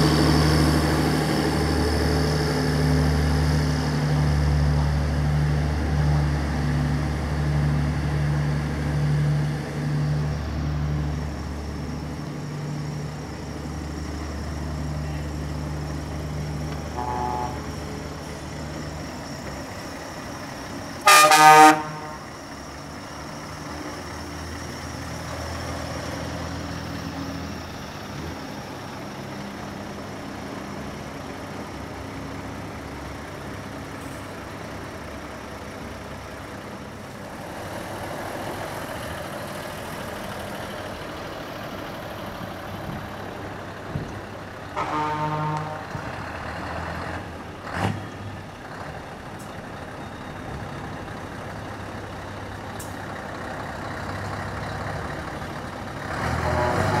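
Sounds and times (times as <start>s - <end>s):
truck diesel engines passing: 0.0s - 57.0s
truck horn: 16.9s - 17.8s, 21.0s - 22.3s, 44.7s - 46.1s, 56.2s - 57.0s.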